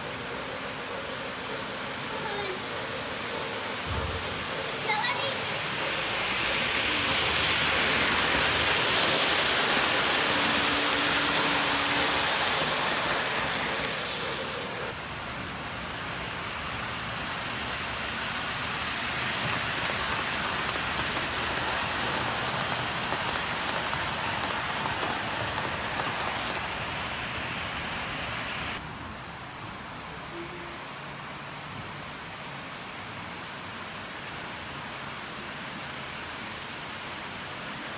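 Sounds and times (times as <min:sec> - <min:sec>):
model trains rumbling on track: 0:00.0 - 0:28.3.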